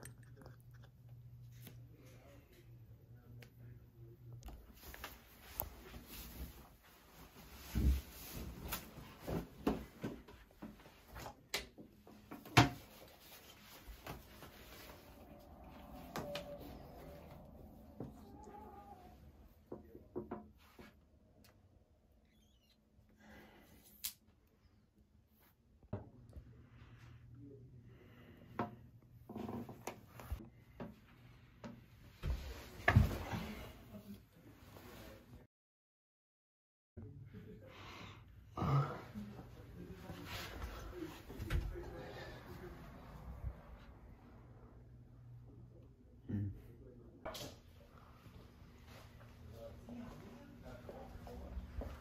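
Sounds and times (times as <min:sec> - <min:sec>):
clothing rustling: 0:04.6 - 0:11.3, 0:12.8 - 0:17.9.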